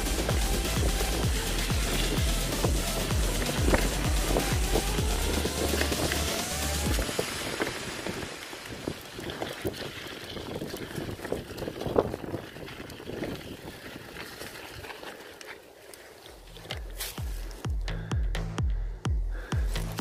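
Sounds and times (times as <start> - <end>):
background music: 0.0 - 7.0, 17.2 - 20.0
bike rattling over bumps: 0.0 - 18.1
bike tyres and wind rushing: 0.0 - 20.0.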